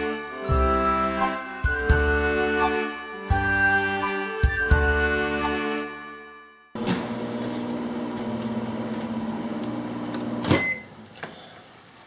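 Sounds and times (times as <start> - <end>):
microwave oven humming: 6.8 - 11.1.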